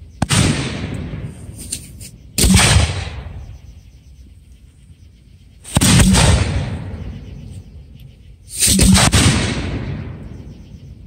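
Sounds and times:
rumbling echo: 0.0s - 1.6s, 2.3s - 3.7s, 5.7s - 7.9s, 8.7s - 11.0s
firework shells bursting with booms: 0.0s - 3.6s, 5.6s - 7.2s, 8.6s - 10.5s.

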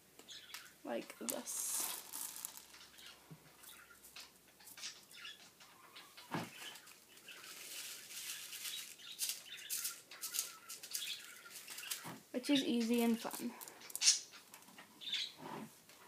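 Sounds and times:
beads pattering onto wood: 0.5s - 4.9s, 6.5s - 14.9s.

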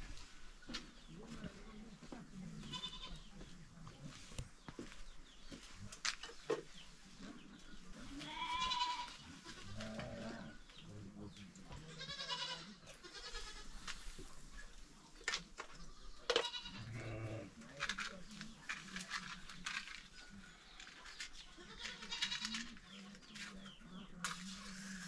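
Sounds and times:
livestock bleating: 2.6s - 3.3s, 8.2s - 10.5s, 11.9s - 13.7s, 16.3s - 17.5s, 21.6s - 22.7s.

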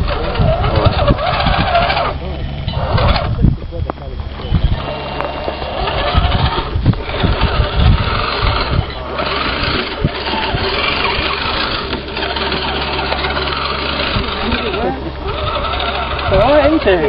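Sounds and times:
small electric motor whirring: 0.0s - 17.0s
wind buffeting microphone: 0.0s - 17.0s.

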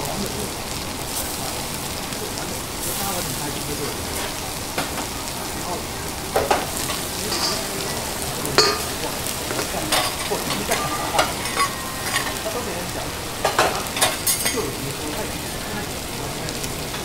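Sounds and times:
food sizzling on griddle: 0.0s - 17.0s
metal spatulas clinking and scraping: 6.9s - 8.0s, 8.6s - 12.4s.

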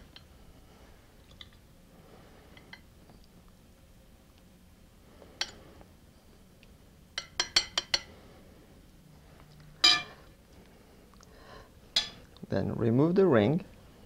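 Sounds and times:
spoon clinking glass bowl: 9.8s - 10.2s
spoon tapping metal ring: 9.8s - 10.2s.

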